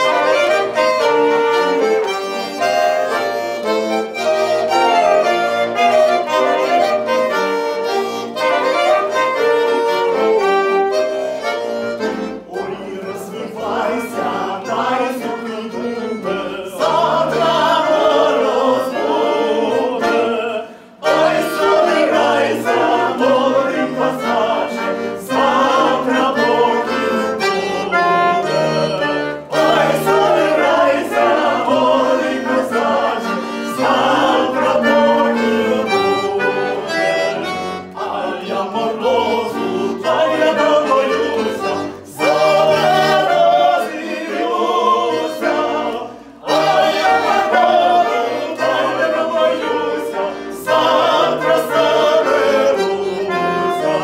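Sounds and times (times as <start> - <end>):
trumpet: 0.0 - 12.8
button accordion folk song: 0.0 - 54.0
people singing along: 0.0 - 54.0
saxophone: 0.0 - 54.0.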